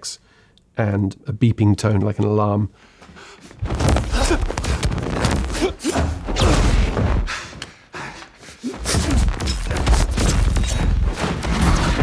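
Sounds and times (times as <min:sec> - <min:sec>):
thuds of blows: 0:03.6 - 0:07.7, 0:08.7 - 0:12.0
grunts and gasps: 0:04.0 - 0:11.0.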